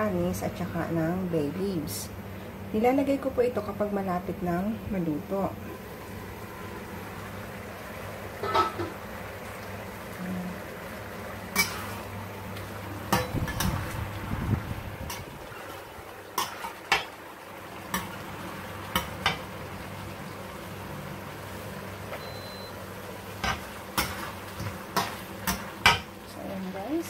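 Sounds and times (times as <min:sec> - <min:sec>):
low steady hum: 0:00.0 - 0:27.0
metal cookware clinking: 0:08.4 - 0:09.0, 0:13.1 - 0:13.7.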